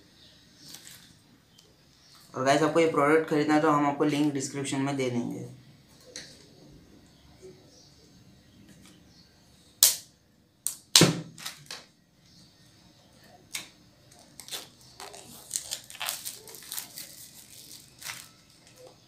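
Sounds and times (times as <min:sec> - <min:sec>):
plastic shrink wrap crinkling: 0:00.6 - 0:01.2, 0:14.1 - 0:19.0.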